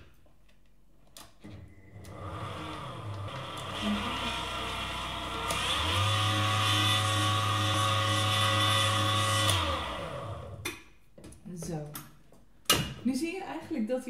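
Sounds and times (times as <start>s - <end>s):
stand mixer motor hum: 2.0s - 10.6s.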